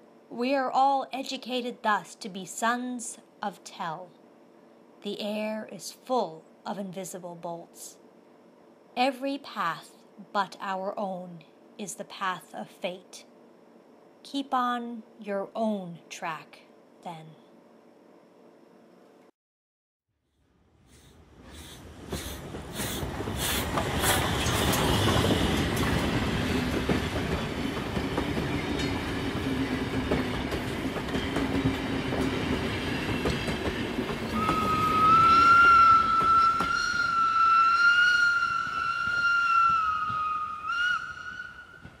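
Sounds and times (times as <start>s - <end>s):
train rumbling on rails: 20.9s - 42.0s
long high wavering tone: 34.3s - 41.9s.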